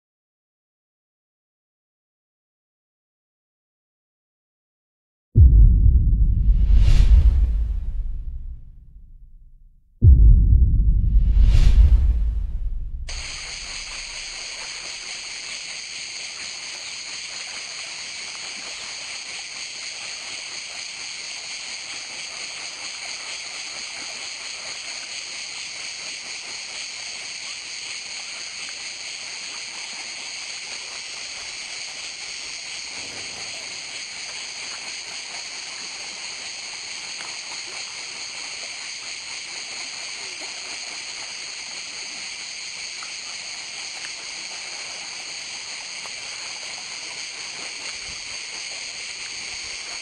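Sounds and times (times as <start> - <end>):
high-pitched outdoor hiss: 11.4 - 50.0.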